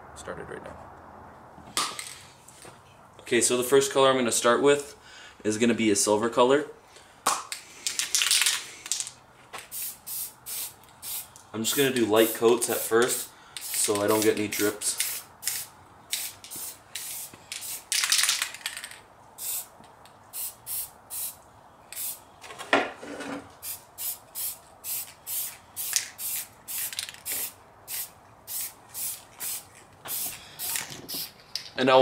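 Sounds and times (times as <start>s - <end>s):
aerosol spray can hissing: 9.7s - 17.9s, 19.4s - 19.7s, 20.4s - 21.4s, 22.0s - 22.2s, 23.6s - 31.4s.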